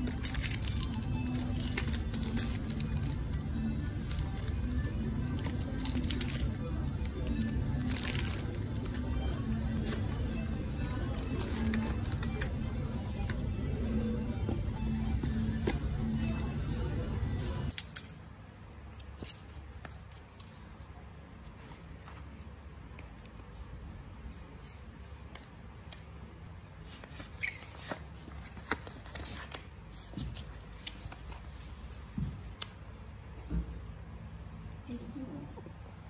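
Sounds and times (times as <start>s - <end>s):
paper handling: 0.0s - 13.4s, 26.8s - 32.7s
background music: 0.0s - 17.8s.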